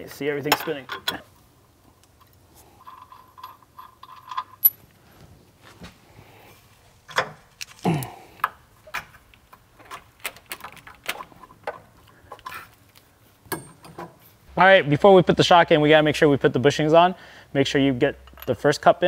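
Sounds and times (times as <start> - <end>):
wrench clinking on metal: 2.2 - 4.8, 13.5 - 14.1, 18.2 - 18.6.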